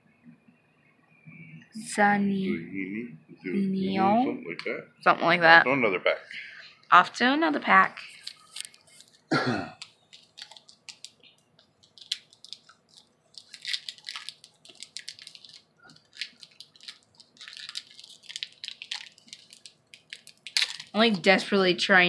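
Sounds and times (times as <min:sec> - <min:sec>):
foil wrapper crinkling: 0:08.0 - 0:21.3.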